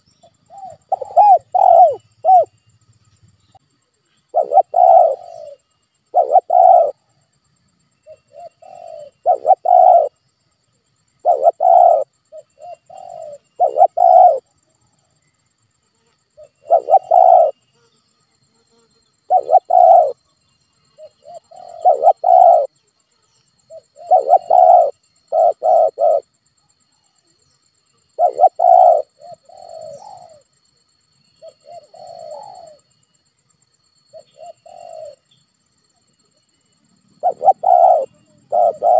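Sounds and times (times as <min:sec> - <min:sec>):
dove cooing: 0:00.0 - 0:02.5, 0:04.2 - 0:07.1, 0:08.0 - 0:10.2, 0:11.2 - 0:14.5, 0:16.4 - 0:17.6, 0:19.2 - 0:20.2, 0:21.0 - 0:22.8, 0:23.7 - 0:26.3, 0:28.1 - 0:30.5, 0:31.4 - 0:32.9, 0:34.1 - 0:35.3, 0:37.1 - 0:38.9.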